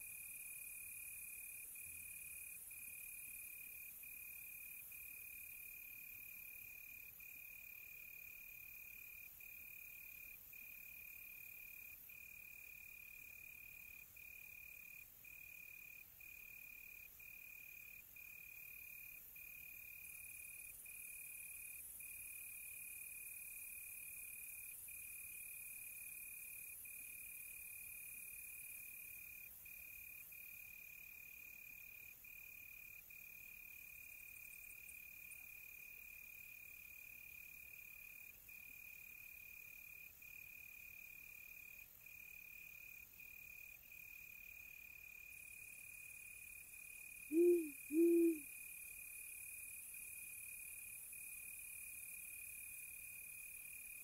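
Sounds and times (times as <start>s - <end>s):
crickets chirping: 0.0s - 54.0s
owl hooting: 47.3s - 48.5s.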